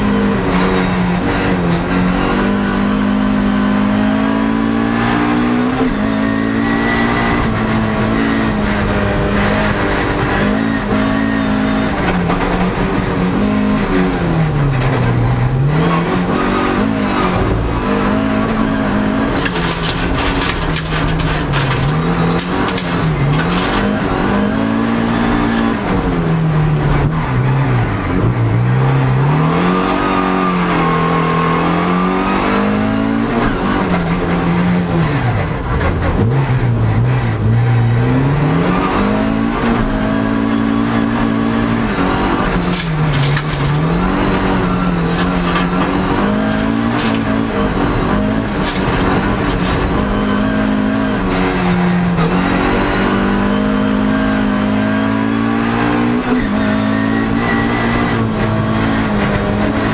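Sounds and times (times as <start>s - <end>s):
car engine revving: 0.0s - 59.9s
rattling over loose dirt: 18.4s - 25.8s, 42.2s - 50.4s.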